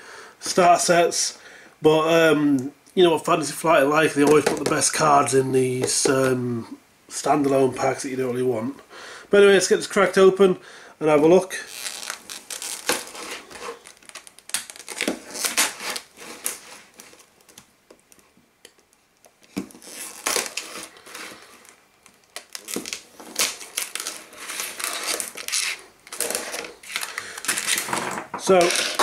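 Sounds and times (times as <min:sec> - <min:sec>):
plastic crackling and crinkling: 0:04.0 - 0:06.4, 0:11.5 - 0:29.0
knife cutting plastic packaging: 0:11.7 - 0:17.3, 0:19.7 - 0:29.0.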